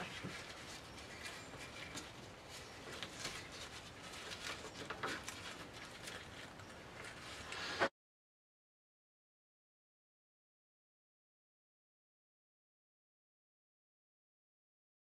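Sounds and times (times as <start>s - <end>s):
dry onion skins rustling: 0.0s - 7.8s.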